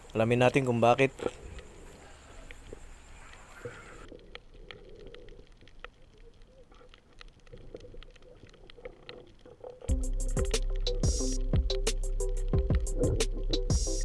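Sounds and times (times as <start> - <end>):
faint clicks and crackles: 0.0 - 10.7
low underwater hiss: 0.0 - 14.0
higher hiss: 9.9 - 14.0.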